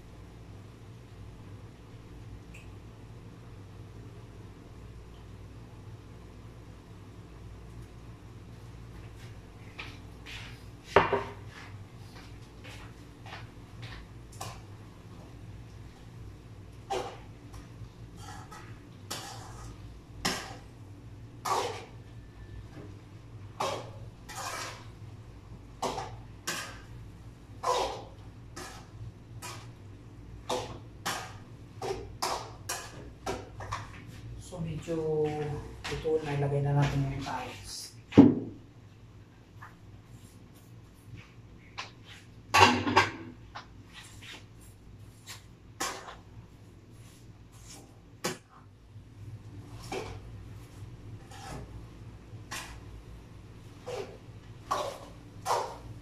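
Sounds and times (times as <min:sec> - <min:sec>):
spatula scraping a wok: 0:18.1 - 0:20.6, 0:23.6 - 0:25.0, 0:51.2 - 0:51.8
metal spatula scraping a wok: 0:24.3 - 0:24.9.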